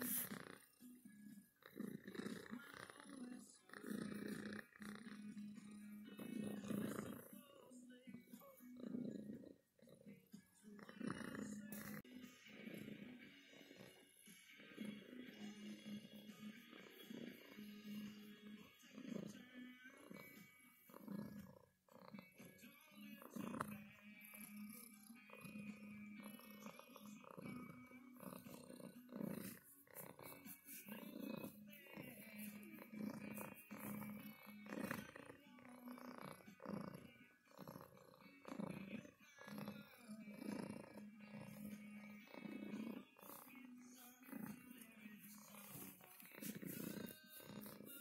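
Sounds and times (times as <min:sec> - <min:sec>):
hand stroking fur: 0:00.0 - 0:00.5, 0:28.3 - 0:34.0, 0:44.3 - 0:48.0
cat purring: 0:00.0 - 0:48.0.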